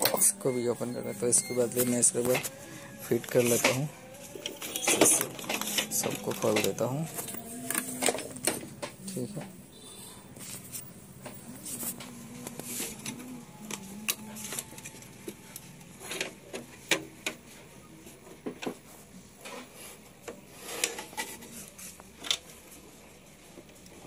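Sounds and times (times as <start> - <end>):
clicks and knocks of handled parts: 2.2 - 9.5, 10.4 - 17.5.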